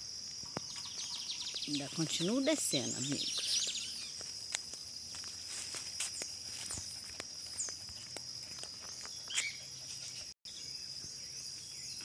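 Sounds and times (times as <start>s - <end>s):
high-pitched insect drone: 0.0s - 12.0s
footsteps on concrete: 3.0s - 9.7s.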